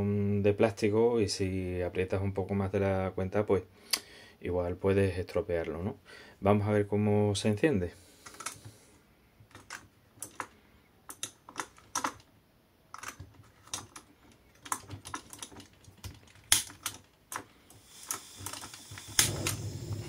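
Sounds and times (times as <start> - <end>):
gas hissing: 17.7 - 20.0
gas stove ignition clicks: 19.0 - 20.0.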